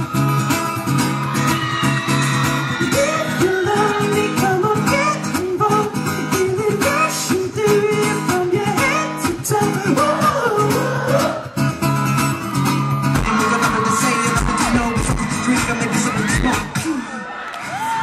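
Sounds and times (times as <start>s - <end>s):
strummed acoustic guitar: 0.0s - 17.0s
man singing: 2.8s - 11.5s, 13.2s - 16.9s.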